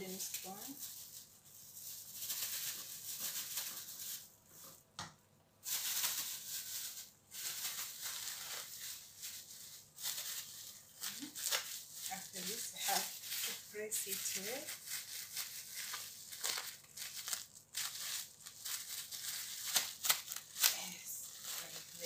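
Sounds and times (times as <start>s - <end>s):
plastic bag crinkling: 0.0s - 4.8s, 5.6s - 22.0s.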